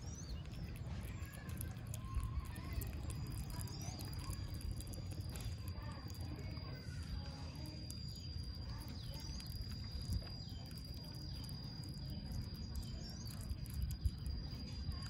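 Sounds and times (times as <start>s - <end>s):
chewing smacks: 0.0s - 15.0s
otter chewing fish: 0.0s - 15.0s.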